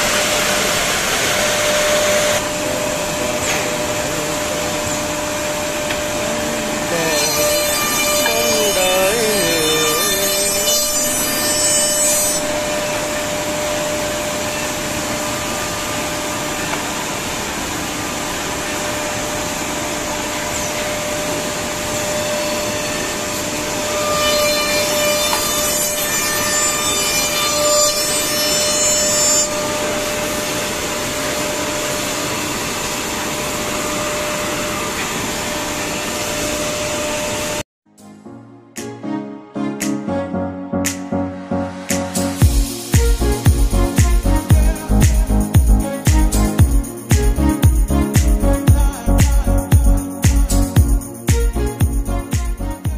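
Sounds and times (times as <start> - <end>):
wood cutting: 0.0 - 37.6.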